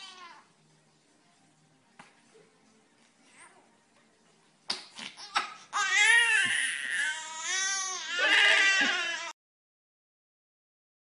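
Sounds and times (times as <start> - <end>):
newborn baby crying: 5.1 - 9.4.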